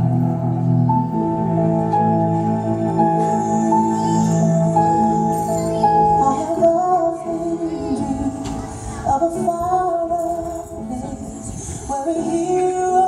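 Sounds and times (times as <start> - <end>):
soundtrack music: 0.0 - 8.9
person singing gliding melody: 0.0 - 13.0.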